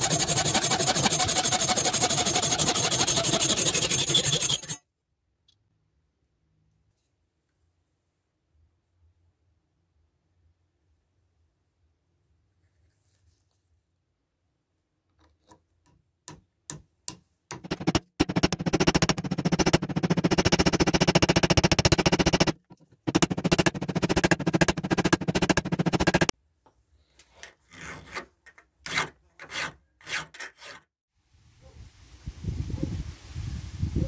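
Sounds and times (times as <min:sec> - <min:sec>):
hand file strokes on antler: 0:00.0 - 0:04.8, 0:17.5 - 0:26.3
rapid scraping of antler: 0:00.0 - 0:04.8, 0:17.6 - 0:26.3.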